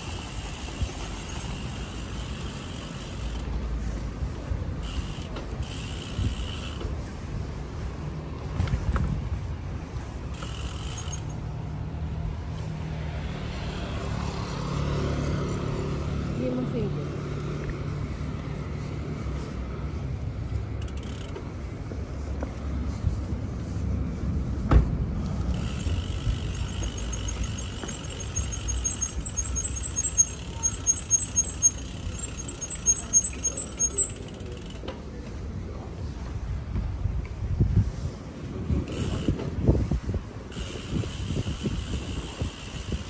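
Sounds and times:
bicycle tyres rumbling: 0:00.0 - 0:16.5, 0:17.1 - 0:43.0
rapid high ticking: 0:25.8 - 0:34.5
wind on microphone: 0:36.3 - 0:43.0.

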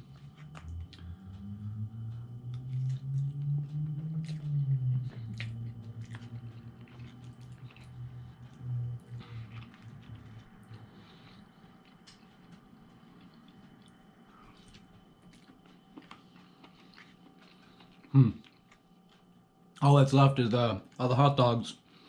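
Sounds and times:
low hum: 0:00.0 - 0:22.0
chewing and slurping noodles: 0:02.5 - 0:18.9.

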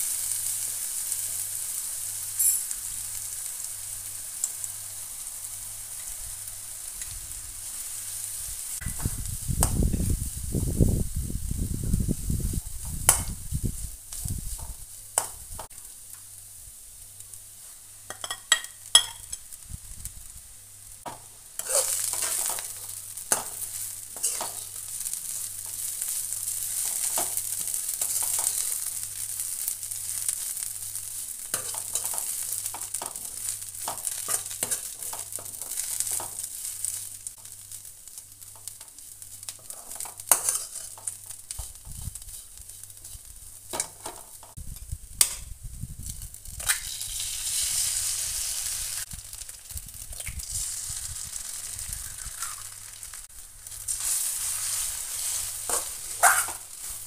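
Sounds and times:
vegetables sizzling in oil: 0:00.0 - 0:57.0
utensil scraping pan: 0:21.6 - 0:22.7, 0:23.3 - 0:24.7, 0:39.6 - 0:44.5, 0:53.9 - 0:57.0.

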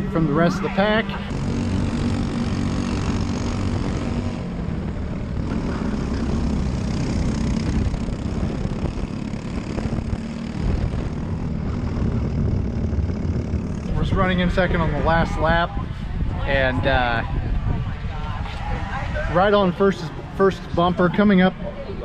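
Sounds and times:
kart engine running hard: 0:00.0 - 0:16.6.

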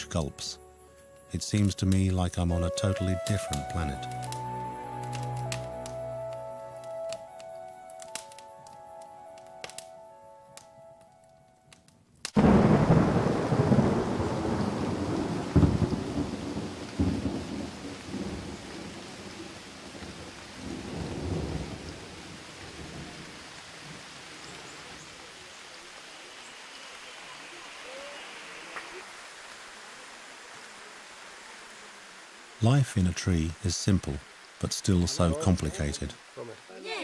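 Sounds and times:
steady rain: 0:00.0 - 0:37.0
thunder rumbling: 0:12.4 - 0:24.1.

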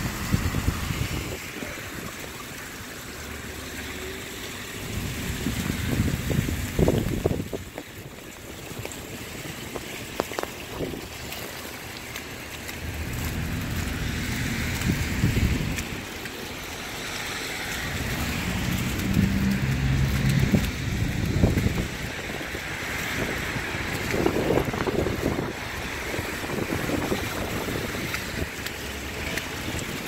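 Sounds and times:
wind on microphone: 0:00.0 - 0:02.2, 0:04.8 - 0:08.3, 0:12.9 - 0:16.2, 0:17.8 - 0:30.0
vehicle engine rumble: 0:00.0 - 0:30.0
wet tyre hiss: 0:12.7 - 0:30.0.

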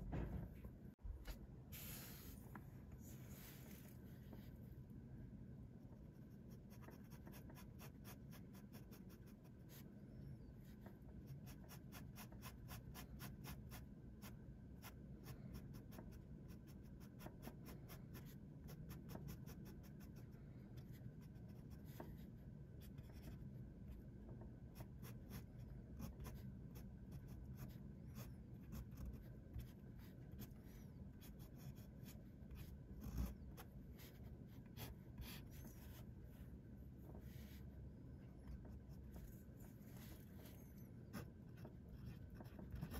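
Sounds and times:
soft knock: 0:00.0 - 0:00.6
fountain pen scratching on paper: 0:06.5 - 0:09.8, 0:24.8 - 0:36.0, 0:38.4 - 0:42.9.

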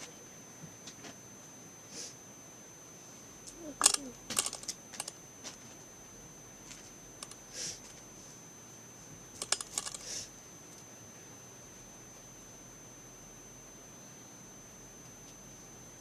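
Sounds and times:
plastic bag crinkling and clicking: 0:03.8 - 0:05.1, 0:09.4 - 0:10.0.

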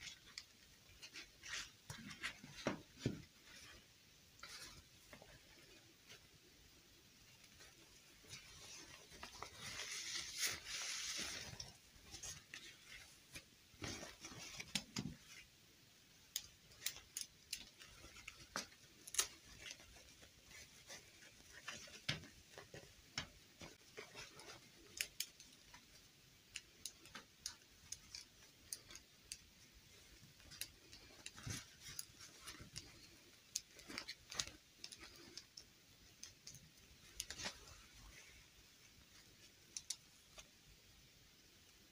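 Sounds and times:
cloth rustling: 0:00.0 - 0:15.6, 0:16.7 - 0:26.1, 0:26.8 - 0:40.5
plastic doll limbs clicking: 0:16.3 - 0:20.0.

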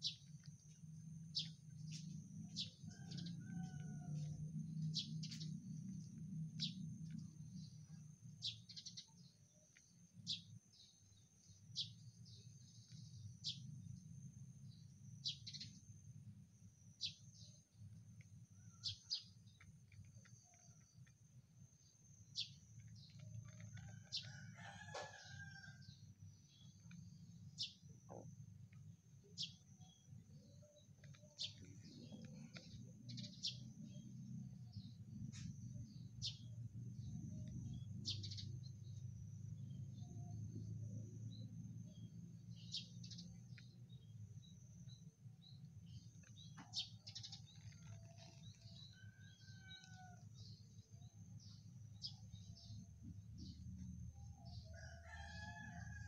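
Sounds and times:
small birds chirping: 0:00.0 - 0:16.1, 0:16.9 - 0:55.8
rooster crowing: 0:02.9 - 0:04.4, 0:23.7 - 0:25.9, 0:54.7 - 0:56.0.

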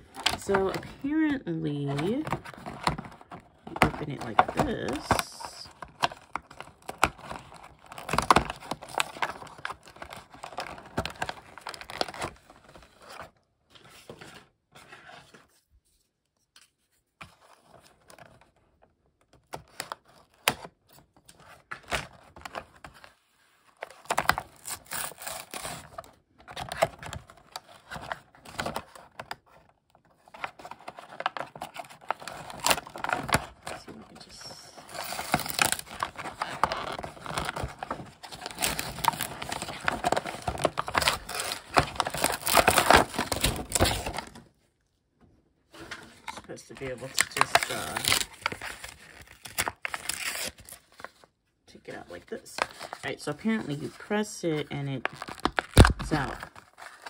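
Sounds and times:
crinkling: 0:21.4 - 0:44.6, 0:45.7 - 0:57.0.

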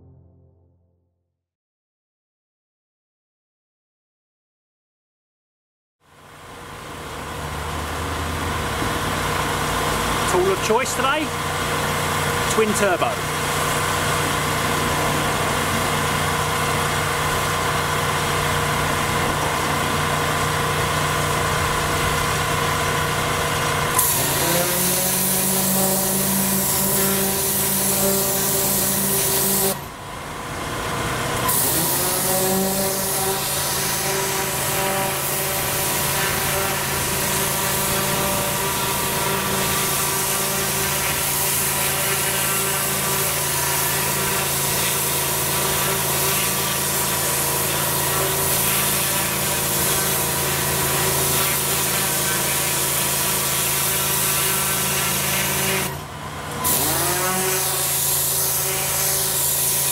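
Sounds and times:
pressure washer engine running: 0:06.0 - 0:59.9
water jet blasting paving: 0:06.2 - 0:59.9.

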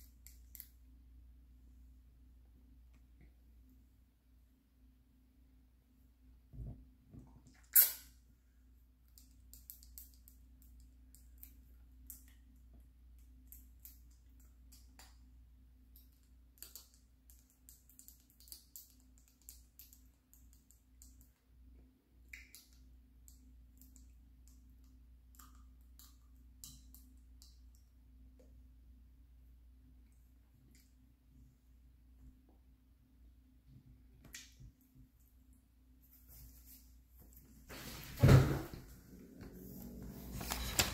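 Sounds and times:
low steady hum: 0:00.0 - 0:09.6, 0:20.8 - 0:40.9.

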